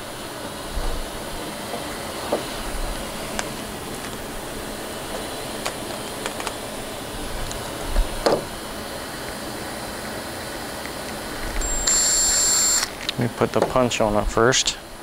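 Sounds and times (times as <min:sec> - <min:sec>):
cordless drill whirring: 0:11.5 - 0:13.1.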